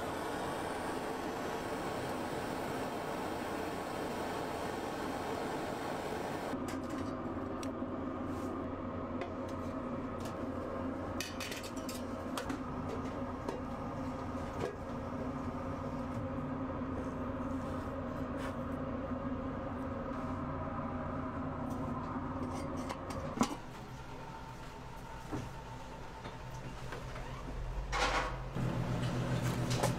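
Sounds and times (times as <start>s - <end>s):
high hiss: 0.0s - 6.6s.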